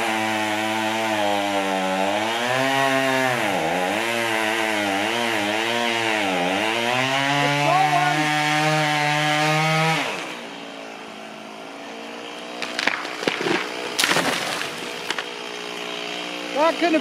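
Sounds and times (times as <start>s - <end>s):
chainsaw cutting and idling: 0.0s - 17.0s
tree cracking and crashing down: 12.5s - 15.4s.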